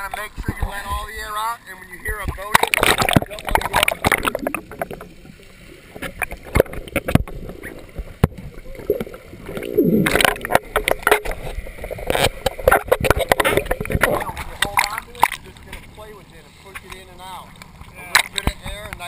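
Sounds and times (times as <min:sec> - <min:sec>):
underwater bubbling and gurgling: 0:00.0 - 0:16.0.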